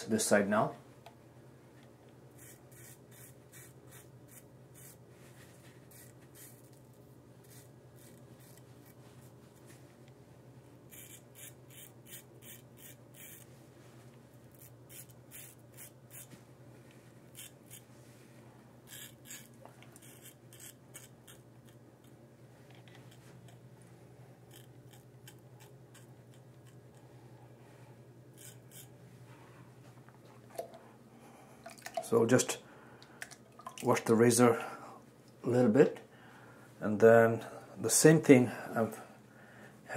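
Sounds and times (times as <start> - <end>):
faint steady hum: 0.0 - 39.9
razor scraping beard stubble: 2.4 - 5.0, 5.9 - 9.0, 10.9 - 13.5, 14.5 - 16.3, 17.3 - 17.9, 18.9 - 21.8, 24.5 - 27.0, 28.3 - 28.9.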